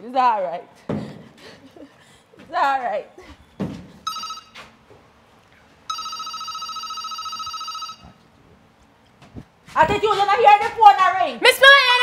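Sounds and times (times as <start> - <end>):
electronic telephone ringing: 4.1 - 4.6, 5.9 - 8.2.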